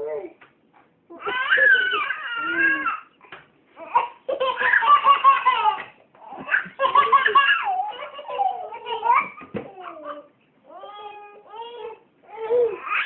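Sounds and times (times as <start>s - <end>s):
toddler laughing: 1.1s - 3.1s, 3.8s - 10.3s.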